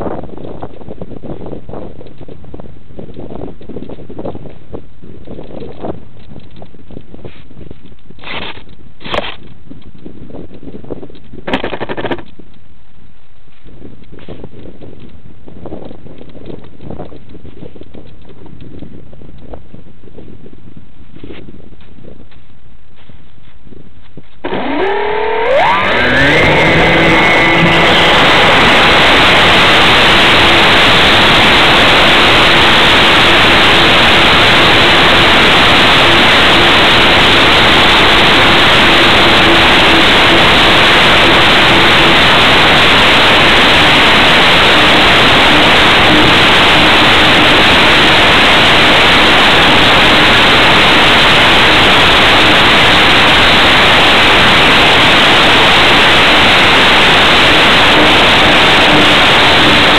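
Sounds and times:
wind and propeller wash rushing: 0:00.0 - 0:21.0, 0:24.4 - 0:59.9
faint aircraft engine drone: 0:24.4 - 0:59.9.

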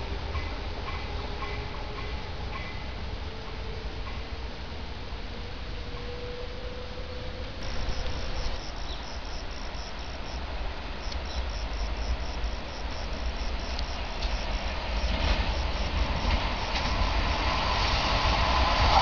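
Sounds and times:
outdoor background rumble and hiss: 0:00.0 - 0:19.0
insect chirping in pulses: 0:07.6 - 0:19.0.

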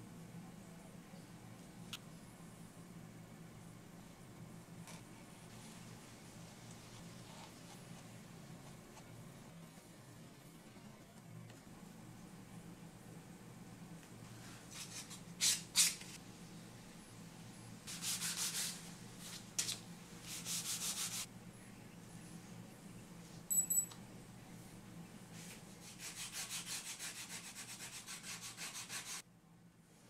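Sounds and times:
light clink: 0:23.5 - 0:24.0
sanding stick scraping leather: 0:25.8 - 0:29.2.

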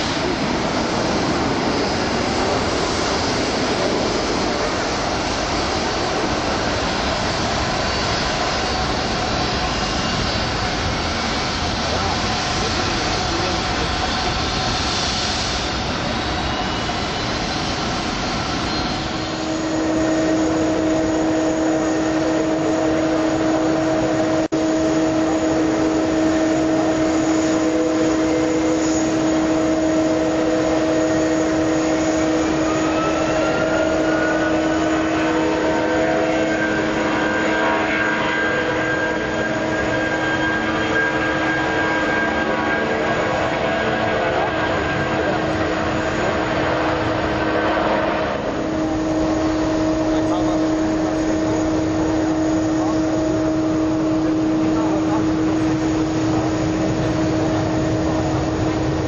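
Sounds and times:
jet engines whining and roaring: 0:00.0 - 0:59.0.

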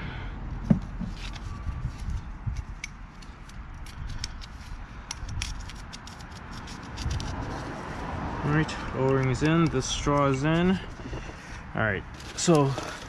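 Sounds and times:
steady low rumble: 0:00.0 - 0:13.0
gloved hands clicking and rubbing: 0:02.5 - 0:07.5.

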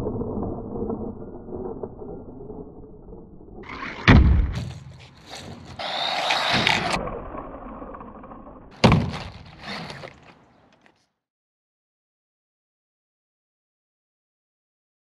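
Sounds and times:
rc car landing thuds: 0:03.7 - 0:07.0, 0:08.7 - 0:10.4
rc car motor whining: 0:05.0 - 0:08.7, 0:09.4 - 0:10.4.

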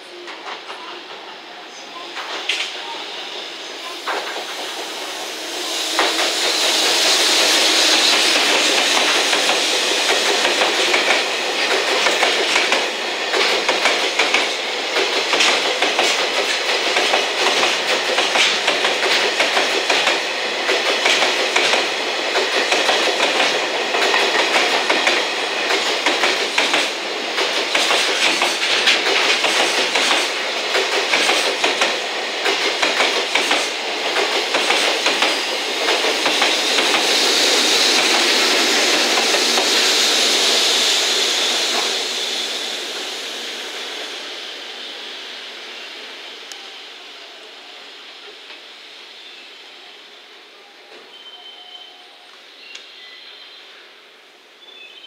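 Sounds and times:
electric locomotive passing: 0:00.0 - 0:55.0.

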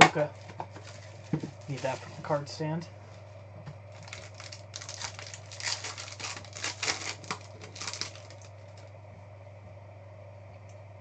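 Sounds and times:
low steady hum: 0:00.0 - 0:11.0
foil wrapper crinkling: 0:00.7 - 0:02.4, 0:03.9 - 0:08.9.

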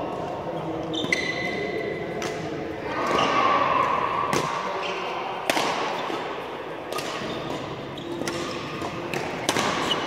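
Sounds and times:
badminton racket hitting shuttlecock: 0:06.9 - 0:10.0.

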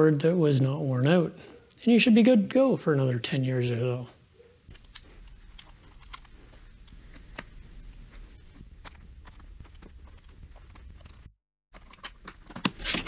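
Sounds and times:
low hum: 0:04.2 - 0:11.3
hands handling plastic calculator: 0:04.7 - 0:13.0.

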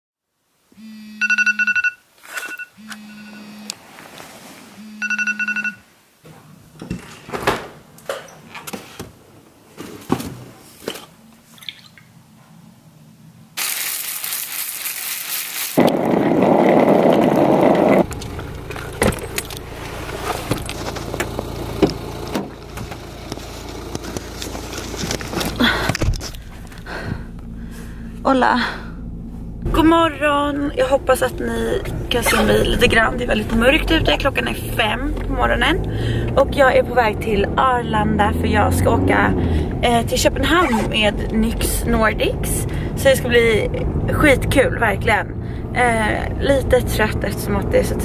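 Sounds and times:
electronic alarm beeping: 0:00.8 - 0:03.7, 0:04.8 - 0:05.8
car engine running: 0:15.8 - 0:48.0.

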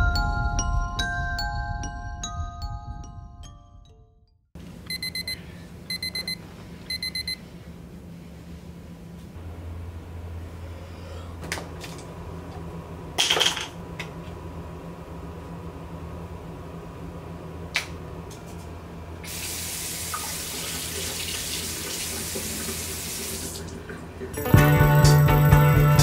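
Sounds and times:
low steady hum: 0:04.6 - 0:20.5
water running into sink: 0:19.2 - 0:24.4.

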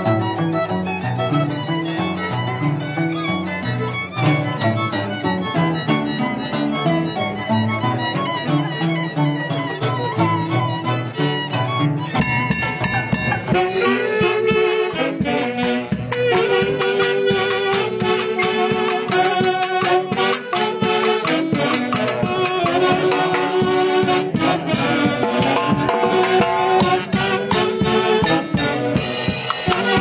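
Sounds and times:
harp: 0:00.0 - 0:30.0
struck percussion beat: 0:12.1 - 0:30.0
saxophones playing melody: 0:12.2 - 0:30.0.

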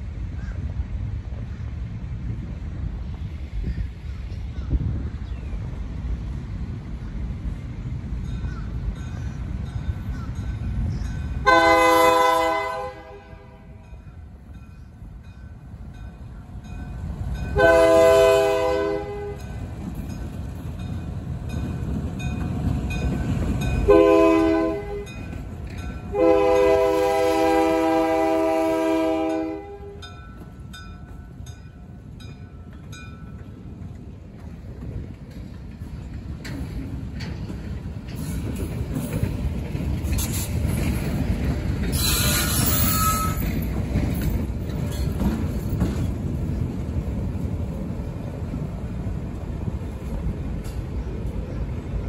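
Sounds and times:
train rumbling past: 0:00.0 - 0:52.0
locomotive air horn blasts: 0:11.4 - 0:13.8, 0:17.6 - 0:19.5, 0:23.9 - 0:25.2, 0:26.1 - 0:30.1.

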